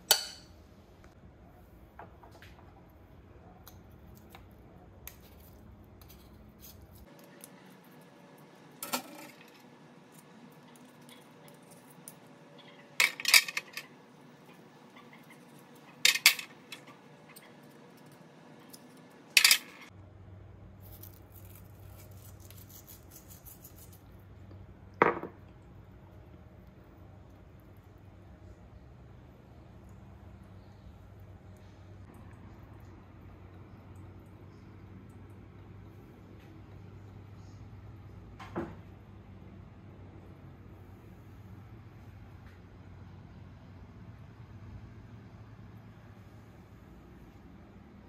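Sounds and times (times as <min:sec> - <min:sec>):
metal skewers clinking on wire rack: 0:13.0 - 0:13.9, 0:15.8 - 0:17.4.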